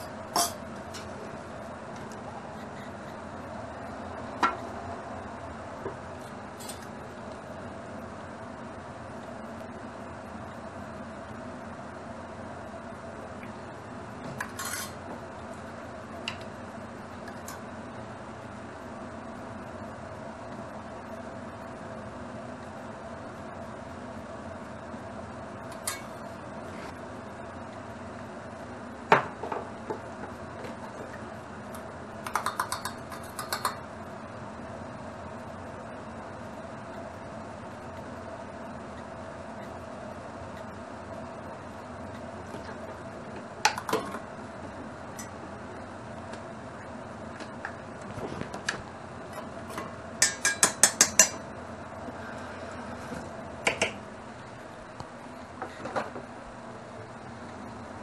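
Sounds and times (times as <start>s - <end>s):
steady low hum: 0.0s - 58.0s
metal spoon clinking on steel: 50.2s - 51.4s.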